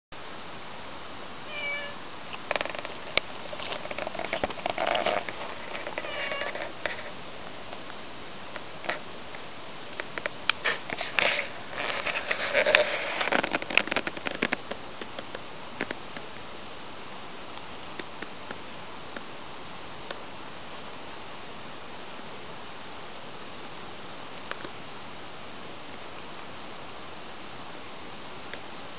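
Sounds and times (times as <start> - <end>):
cat meowing: 1.5 - 2.0, 5.9 - 6.8
gravel and leaves crunching: 1.6 - 7.9.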